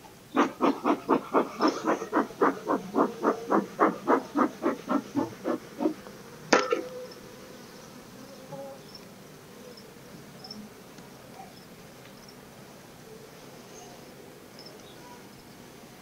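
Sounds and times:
short rhythmic puffs: 0.4s - 6.0s
honeybees buzzing: 0.4s - 13.6s.

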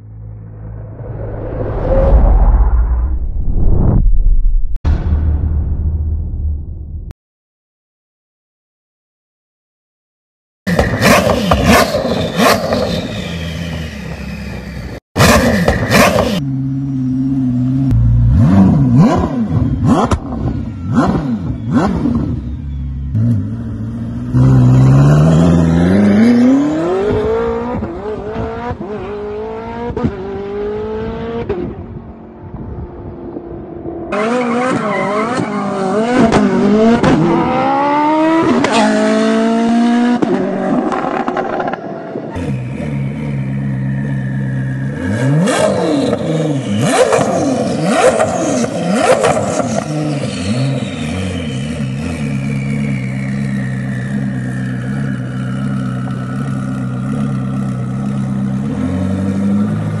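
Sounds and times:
high whine falling in pitch: 0.0s - 5.0s.

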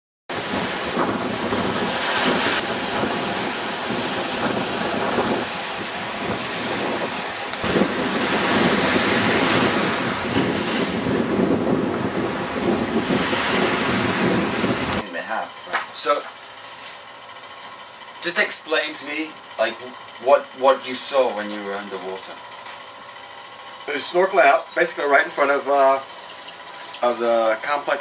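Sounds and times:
wind buffeting microphone: 0.3s - 15.0s
sea surf washing over sand: 0.3s - 15.1s.

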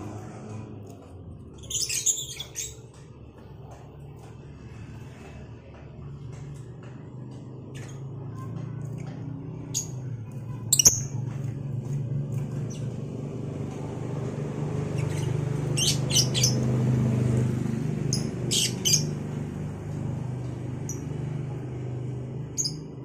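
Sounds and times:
lovebirds chirping shrilly: 15.0s - 16.6s.

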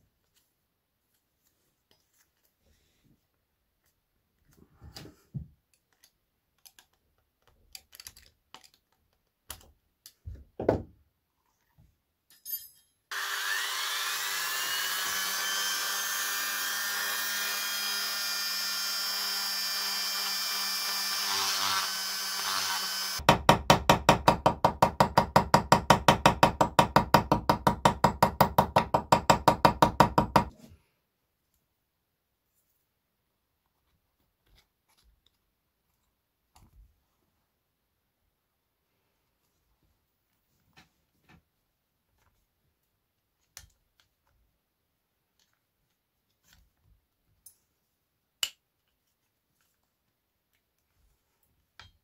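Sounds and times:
hand-sawing strokes: 13.1s - 23.2s
rotary tool grinding whine: 13.1s - 23.2s.

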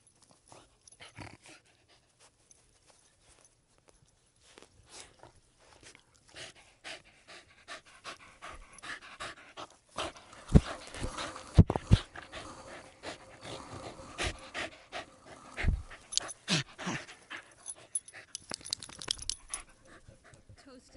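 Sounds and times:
dog panting and snuffling: 0.0s - 20.9s
grass rustling: 9.4s - 20.2s.

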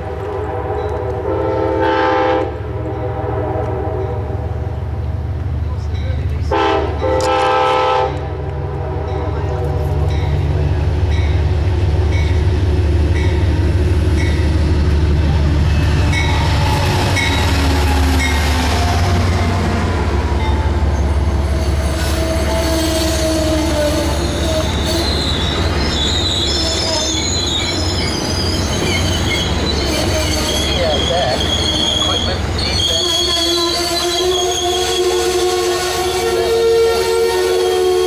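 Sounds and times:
diesel locomotive engine rumbling: 0.0s - 38.0s
passenger coaches rolling by: 0.0s - 38.0s
train wheel and brake squeal: 15.7s - 19.6s, 20.4s - 38.0s.

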